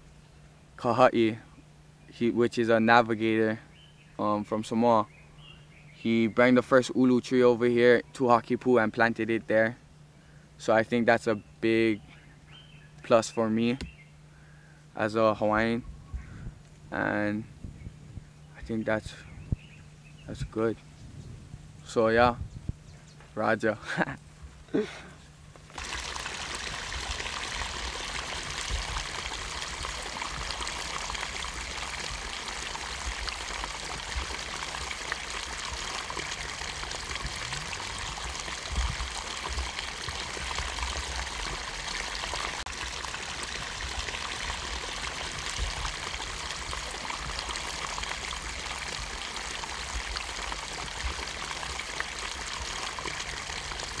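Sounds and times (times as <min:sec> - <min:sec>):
running water rushing: 0:25.6 - 0:54.0.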